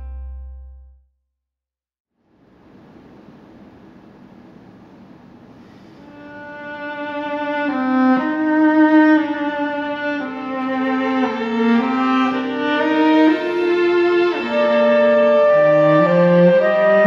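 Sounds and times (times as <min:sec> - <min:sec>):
cello playing held notes: 0:06.0 - 0:17.0
violin playing held notes: 0:06.0 - 0:17.0
clarinet playing held notes: 0:12.0 - 0:17.0.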